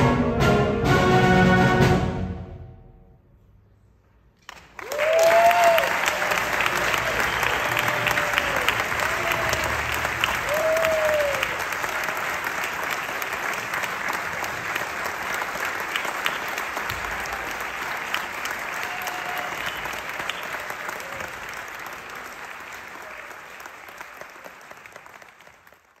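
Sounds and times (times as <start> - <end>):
audience applauding: 4.4 - 26.0.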